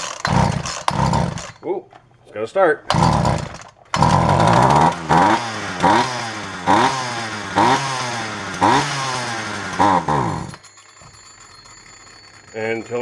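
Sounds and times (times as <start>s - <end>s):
chainsaw engine revving: 0.0s - 1.6s, 2.9s - 10.7s.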